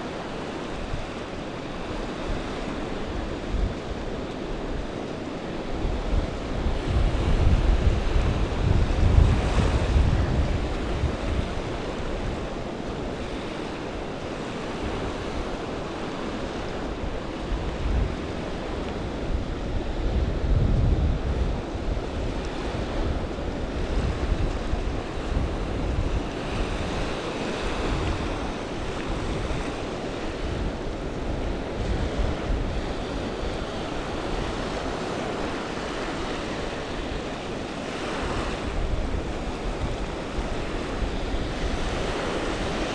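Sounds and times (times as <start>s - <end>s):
small waves washing over sand: 0.0s - 42.9s
wind buffeting microphone: 0.0s - 42.9s.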